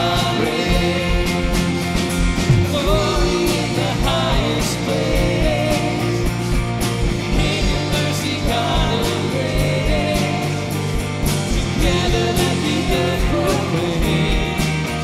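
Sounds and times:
man singing: 0.0 - 1.5, 2.5 - 6.2, 7.3 - 10.6, 11.6 - 15.0
rock band playing: 0.0 - 15.0.

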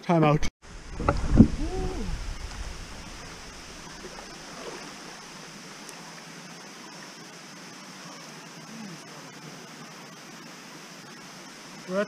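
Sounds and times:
waterfall rushing water: 0.7 - 8.3.

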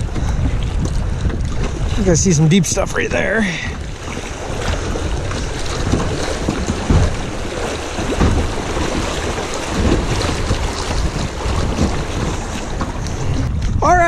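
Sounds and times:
wind buffeting microphone: 0.0 - 14.0
river rapids splashing: 2.0 - 12.8.

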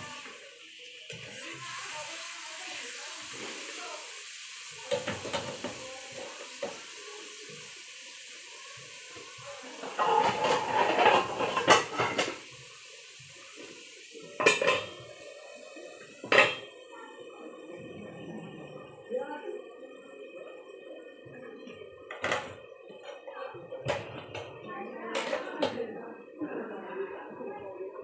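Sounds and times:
metal utensils clattering: 9.8 - 12.4, 14.4 - 15.0
metal lid clanking on pan: 9.9 - 12.4, 14.4 - 15.0.

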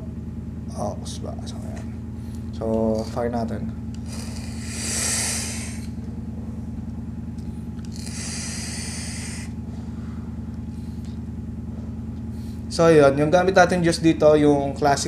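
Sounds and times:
steady low hum: 0.0 - 15.0
hissing air through vape device: 4.0 - 5.9, 7.8 - 9.6.

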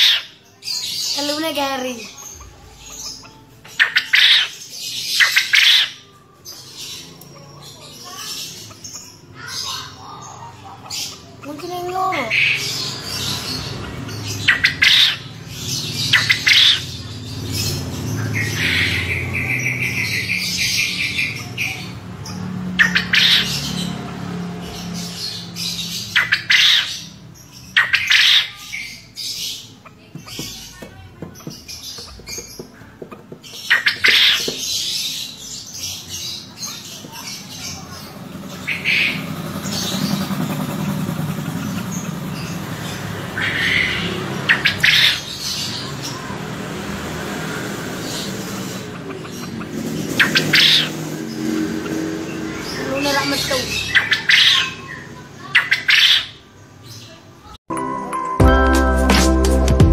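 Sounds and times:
quail calling: 0.0 - 0.4, 2.0 - 6.2, 7.3 - 17.0, 17.6 - 23.6, 26.0 - 27.2, 27.8 - 35.1, 36.6 - 46.1, 48.0 - 56.4.

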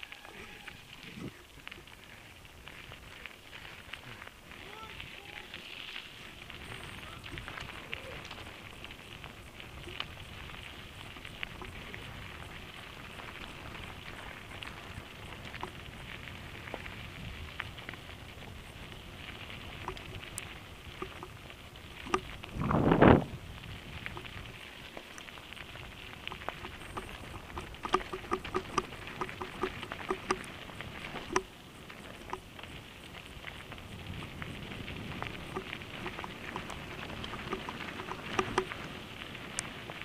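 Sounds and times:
bike rattling: 0.0 - 40.0
bike tyres crunching on gravel: 0.0 - 40.0
stones clicking: 22.0 - 22.8, 26.2 - 31.5, 35.2 - 38.9
bike thump-rattle jolt: 26.3 - 30.5.

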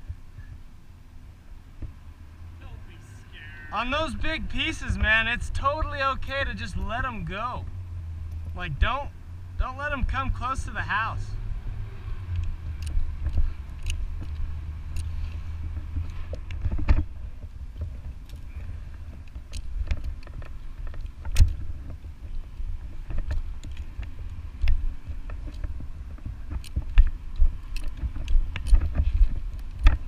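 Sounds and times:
low steady rumble: 0.0 - 30.0
carabiners clicking and knocking: 12.3 - 15.4, 19.1 - 21.6, 23.1 - 30.0.

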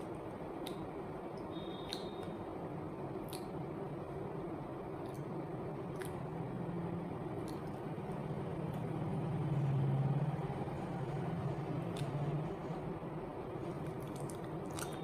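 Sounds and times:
low motor hum: 5.5 - 15.0.

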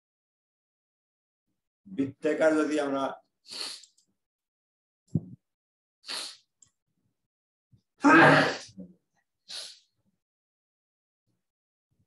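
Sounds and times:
breath drawn in: 3.5 - 3.9, 6.0 - 6.5, 9.5 - 9.9
man sneezing: 8.0 - 8.8.

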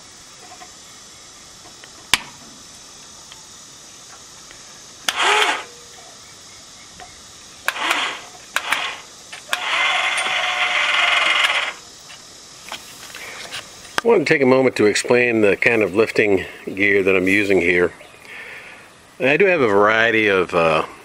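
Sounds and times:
winch motor running: 5.0 - 5.8, 7.6 - 11.9.

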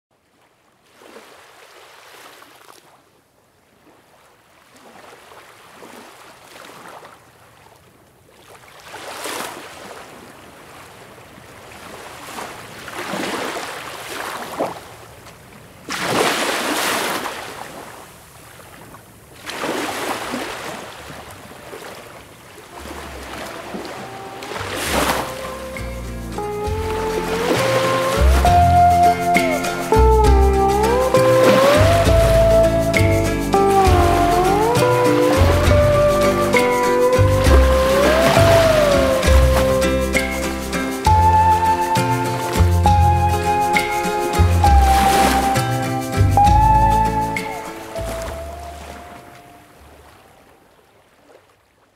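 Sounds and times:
ocean waves breaking: 0.5 - 3.0, 3.8 - 51.6
faint music: 22.8 - 49.8.

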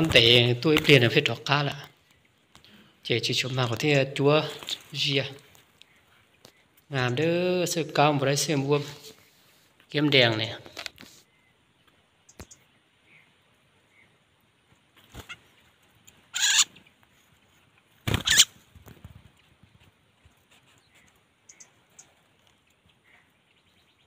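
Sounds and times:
rustling and handling noise: 0.0 - 7.6, 8.5 - 11.3, 14.6 - 23.0
faint bird chirps: 11.1 - 14.4, 20.6 - 24.0.

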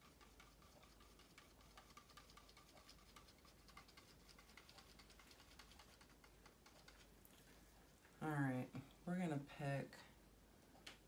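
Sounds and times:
stir stick ticking in plastic cup: 0.0 - 7.3.

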